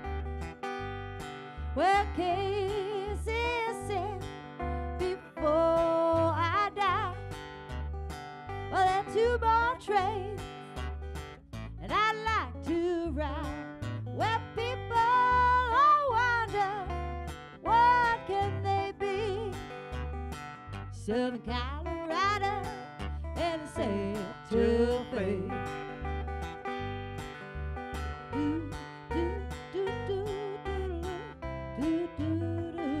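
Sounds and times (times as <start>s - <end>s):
bass guitar low notes: 0.0s - 33.0s
strummed acoustic guitar: 0.0s - 33.0s
woman singing: 1.8s - 7.4s, 8.7s - 10.6s, 11.8s - 19.8s, 20.9s - 25.9s, 28.2s - 33.0s.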